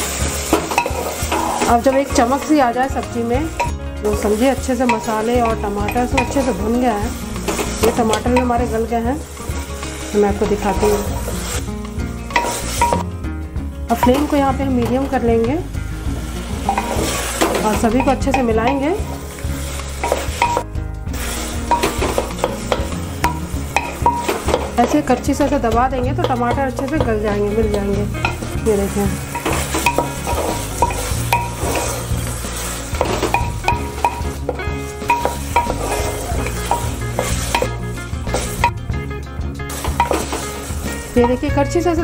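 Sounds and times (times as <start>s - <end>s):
wooden ladle scraping metal pot: 0.0s - 13.1s, 13.9s - 38.9s, 39.7s - 41.6s
light sizzle of frying: 0.0s - 42.0s
soft background music: 0.0s - 42.0s
metal pot ringing: 0.6s - 8.7s, 12.3s - 13.1s, 13.9s - 15.4s, 16.6s - 19.4s, 20.0s - 20.7s, 21.6s - 32.1s, 32.9s - 38.9s, 39.8s - 41.7s.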